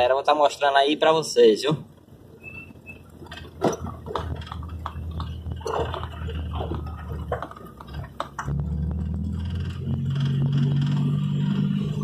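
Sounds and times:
vehicle engine humming: 0:00.0 - 0:12.0
irregular clicks and knocks: 0:03.1 - 0:08.5.

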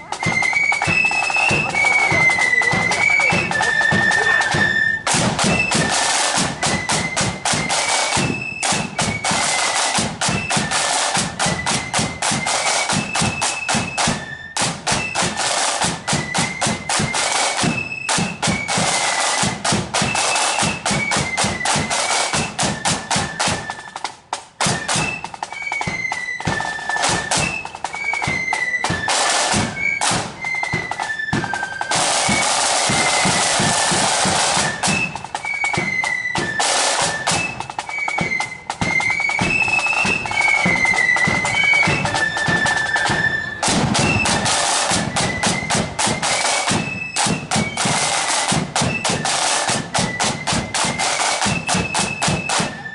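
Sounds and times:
flutes playing high tune: 0:00.0 - 0:52.9
side drums rattling: 0:00.0 - 0:52.9.

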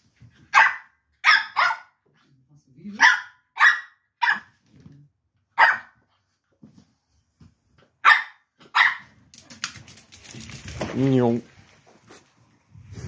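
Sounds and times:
puppy yapping: 0:03.0 - 0:04.5, 0:05.6 - 0:06.0.

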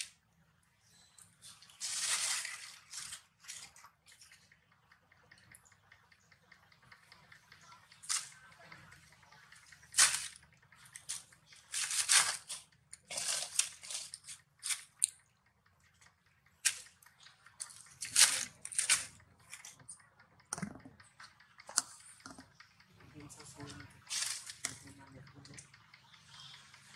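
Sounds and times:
dry leaves crunching and rustling: 0:01.8 - 0:03.6, 0:11.1 - 0:14.8, 0:24.1 - 0:24.6.

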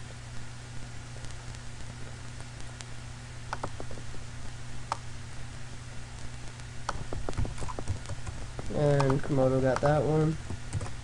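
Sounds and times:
steady low hum: 0:00.0 - 0:11.0
mouse and keyboard clicks: 0:03.6 - 0:04.0, 0:06.9 - 0:10.0.

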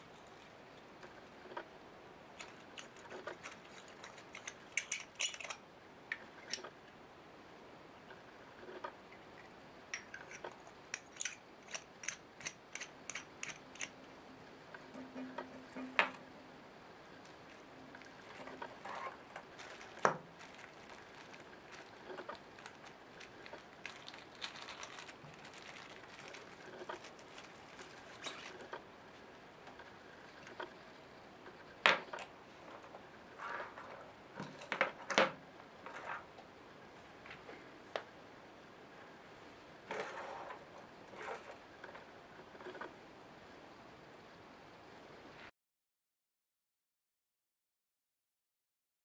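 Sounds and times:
metal capsules clicking: 0:02.8 - 0:06.7, 0:10.0 - 0:14.0
plastic bag crinkling: 0:17.2 - 0:28.7.

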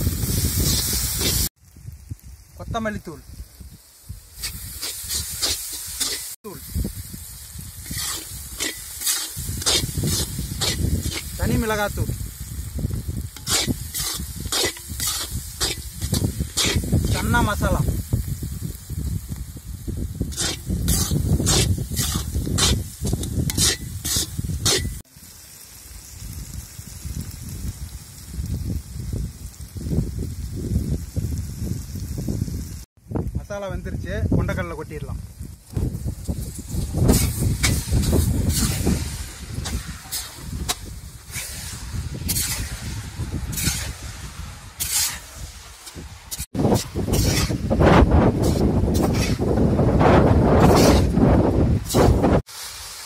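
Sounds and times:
spatula scraping in iron pan: 0:04.4 - 0:06.4, 0:07.8 - 0:11.8, 0:13.3 - 0:17.4, 0:20.3 - 0:25.0, 0:37.0 - 0:47.8, 0:48.4 - 0:49.6, 0:50.6 - 0:51.2.

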